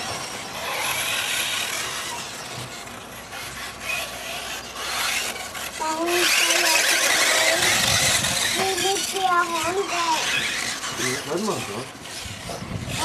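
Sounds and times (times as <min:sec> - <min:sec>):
rc car drive and tyre hiss: 0:00.0 - 0:13.0.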